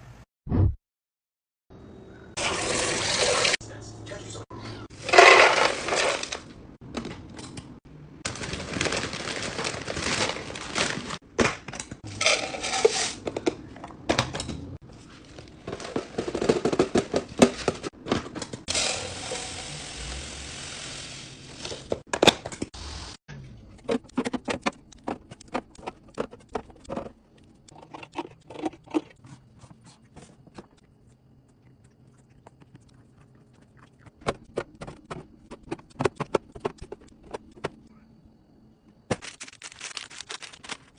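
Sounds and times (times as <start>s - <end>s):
dry food pouring into canisters: 5.0s - 6.4s
plastic packaging crinkling: 8.3s - 11.2s, 39.1s - 40.9s
lids and containers clicking: 23.8s - 29.2s.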